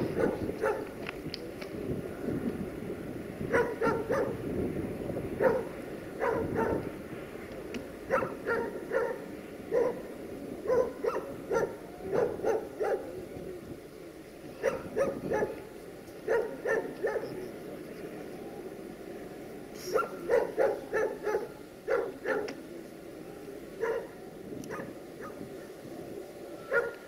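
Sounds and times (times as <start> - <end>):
dog barking: 0.2 - 0.9, 3.5 - 4.4, 5.4 - 6.8, 8.1 - 10.0, 10.6 - 13.1, 14.6 - 15.6, 16.3 - 17.3, 19.9 - 22.6, 23.8 - 24.1, 24.7 - 25.4, 26.7 - 27.0.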